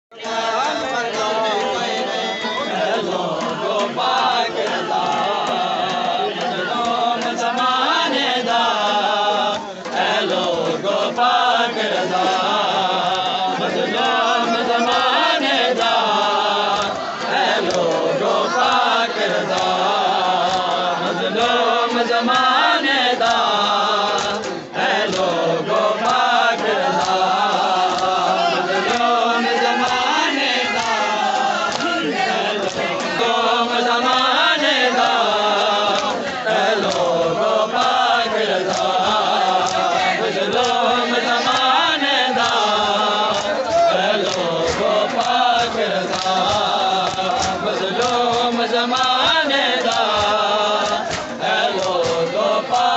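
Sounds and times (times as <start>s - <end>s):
men chanting in unison: 0.1s - 52.9s
hands slapping chests: 14.0s - 21.7s, 22.3s - 25.4s, 26.0s - 52.9s.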